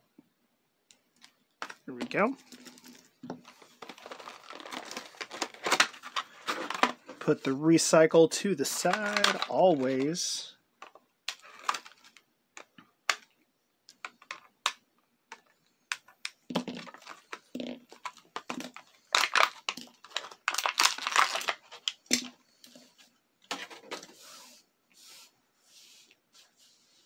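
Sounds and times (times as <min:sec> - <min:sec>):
plastic packaging crinkling: 0:01.2 - 0:07.5, 0:08.6 - 0:10.3, 0:11.3 - 0:12.2, 0:16.6 - 0:22.8.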